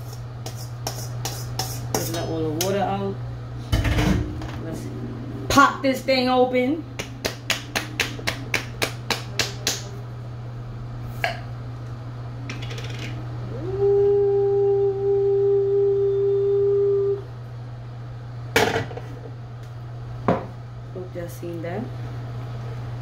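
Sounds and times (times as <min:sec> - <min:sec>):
steady tone: 0:04.3 - 0:09.4.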